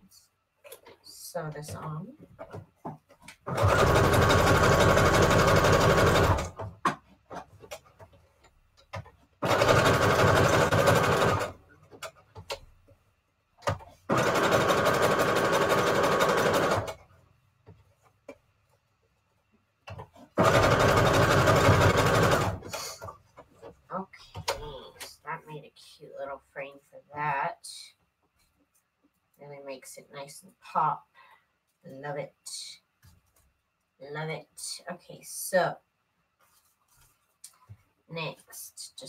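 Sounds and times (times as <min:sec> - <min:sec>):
sewing machine stitching: 0:03.4 - 0:06.8, 0:09.4 - 0:12.6, 0:13.7 - 0:17.1, 0:20.1 - 0:23.1.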